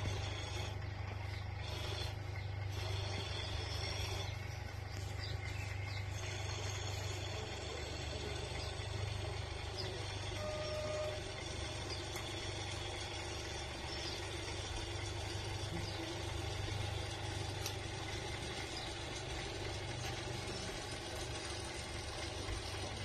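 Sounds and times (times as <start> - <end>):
model train running hum: 0.0 - 23.0
short high-pitched tones: 10.3 - 11.3.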